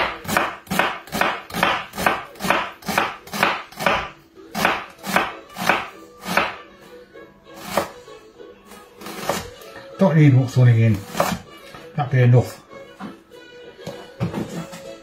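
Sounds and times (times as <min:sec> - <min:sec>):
knife chopping on wooden board: 0:00.0 - 0:06.6, 0:09.0 - 0:09.6, 0:10.9 - 0:11.8.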